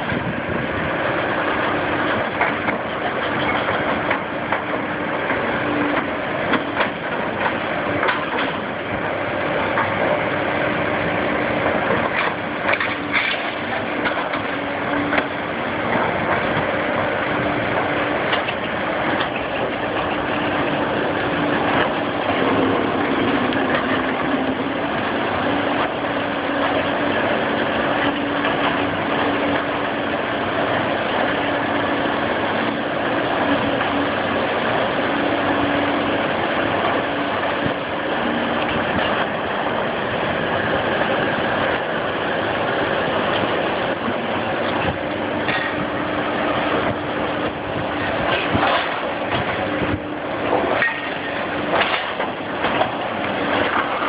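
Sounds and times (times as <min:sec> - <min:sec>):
excavator diesel engine running: 0:00.0 - 0:54.0
clanks and knocks: 0:05.3 - 0:08.6, 0:48.3 - 0:49.6, 0:50.5 - 0:54.0.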